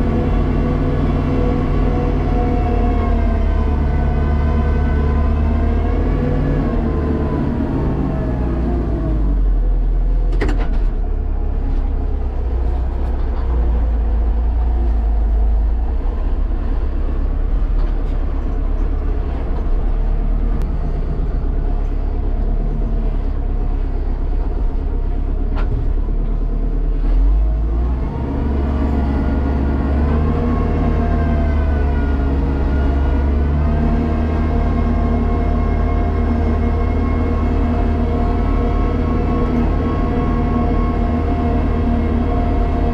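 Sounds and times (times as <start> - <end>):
tractor diesel engine running: 0.0 - 42.9
snow blower clearing snow: 27.8 - 42.9.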